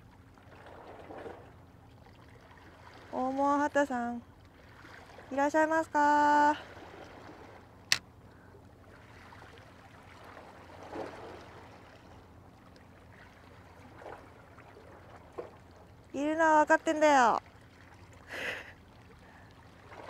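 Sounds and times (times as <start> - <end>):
small waves lapping against rocks: 4.4 - 5.5.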